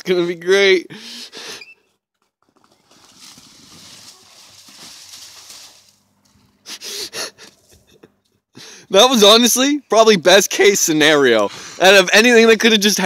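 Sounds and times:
bicycle crashing in snow: 0:02.6 - 0:06.0
sliding in snow hiss: 0:02.8 - 0:06.0.

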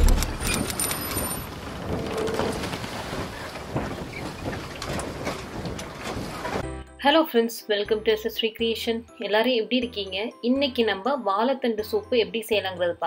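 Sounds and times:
noisy wash with crackles: 0:00.0 - 0:06.6.

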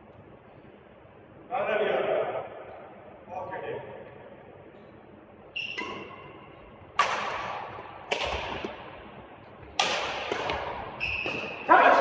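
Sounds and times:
racket smacking shuttlecock: 0:05.6 - 0:09.0, 0:09.6 - 0:11.7.

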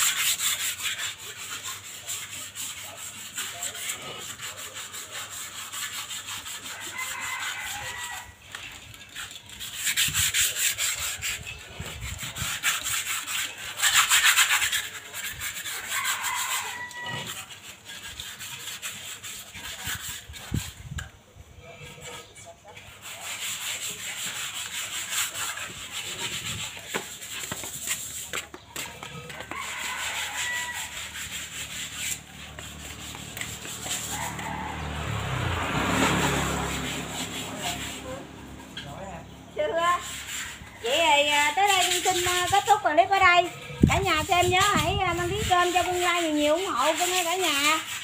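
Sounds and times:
scrubbing cement pots: 0:00.0 - 0:48.0.

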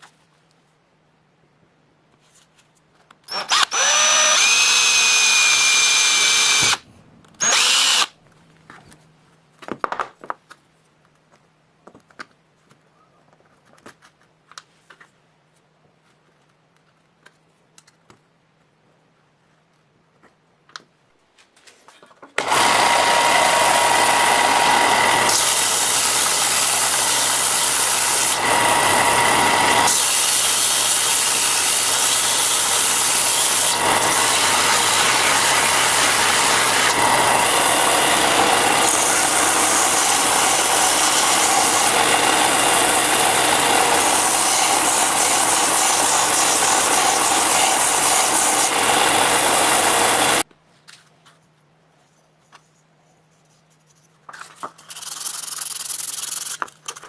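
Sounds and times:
power tool grinding steel: 0:03.3 - 0:06.8, 0:07.4 - 0:08.1, 0:22.4 - 0:50.4.

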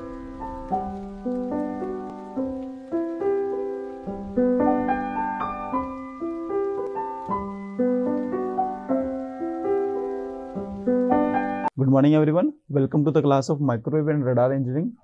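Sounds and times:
keyboard playing gentle chords: 0:00.0 - 0:11.7.

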